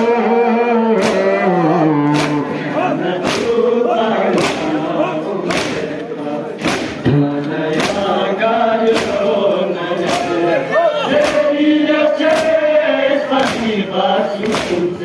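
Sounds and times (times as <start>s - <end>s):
men chanting in unison: 0.0s - 15.0s
rhythmic chest-beating slaps: 0.8s - 15.0s.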